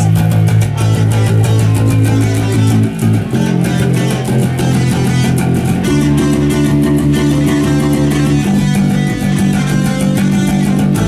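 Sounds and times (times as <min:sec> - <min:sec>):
electric guitar and bass rock riff: 0:00.0 - 0:11.0.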